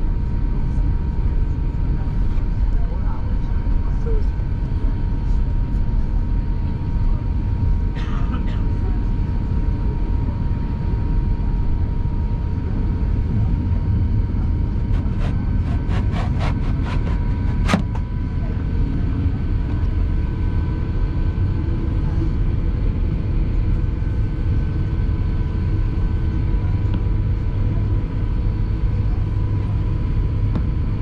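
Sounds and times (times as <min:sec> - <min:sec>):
cabin low rumble: 0:06.7 - 0:09.6, 0:12.1 - 0:31.0
jet engines humming: 0:13.3 - 0:20.8.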